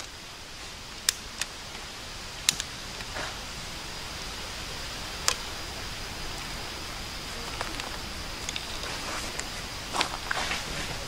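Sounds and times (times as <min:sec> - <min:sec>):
steady hiss: 0:00.0 - 0:11.0
fire starter clicks and snaps: 0:01.0 - 0:01.8, 0:02.4 - 0:03.3.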